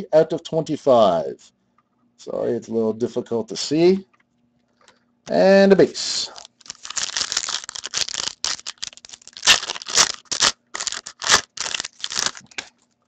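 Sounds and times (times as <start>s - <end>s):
card pack wrapper crinkling and tearing: 6.2s - 12.7s.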